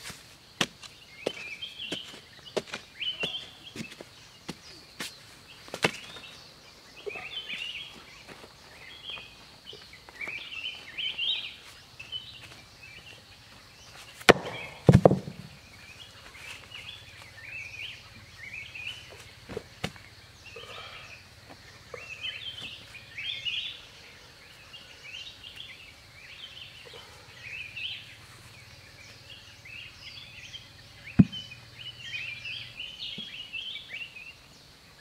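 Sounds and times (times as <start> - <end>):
small birds chirping: 0.0 - 35.0
heavy thumps: 14.3 - 15.6.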